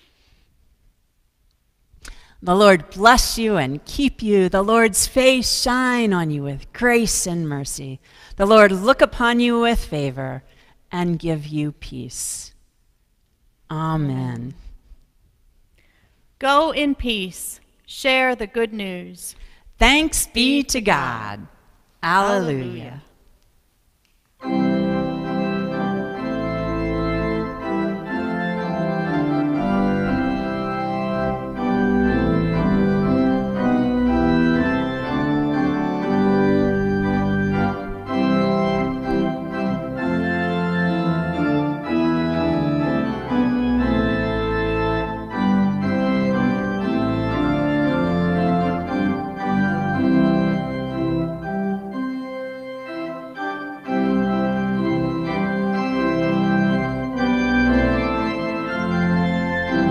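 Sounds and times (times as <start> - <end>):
organ playing sustained chords: 24.4 - 59.9.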